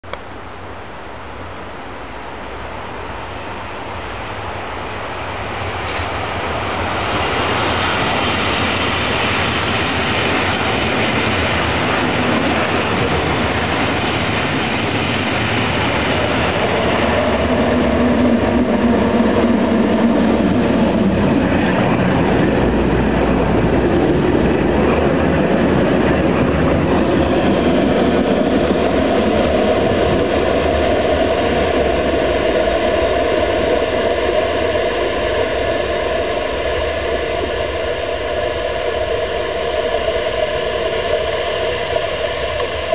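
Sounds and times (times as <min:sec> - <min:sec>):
trams rolling: 0:03.0 - 0:42.9.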